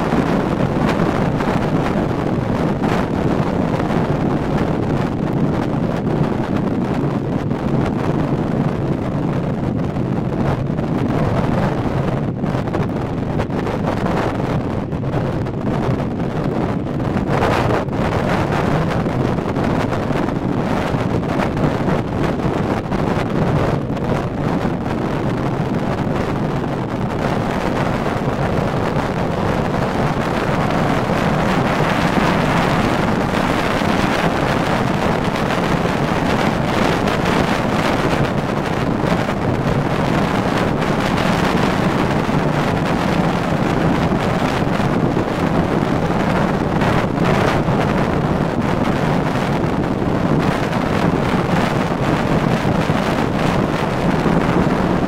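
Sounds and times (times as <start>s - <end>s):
engine and tyre drone: 0.0s - 55.0s
wind on microphone: 0.0s - 55.0s.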